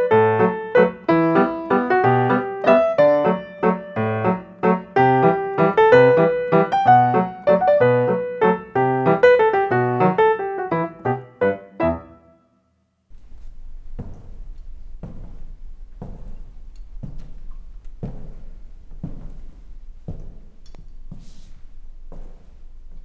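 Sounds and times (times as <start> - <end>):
solo piano playing: 0.0 - 12.6.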